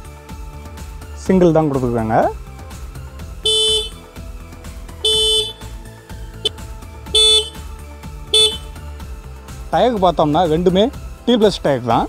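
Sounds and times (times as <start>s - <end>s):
motorcycle horn honks: 3.4s - 4.0s, 5.0s - 5.7s, 6.4s - 7.6s, 8.3s - 8.8s.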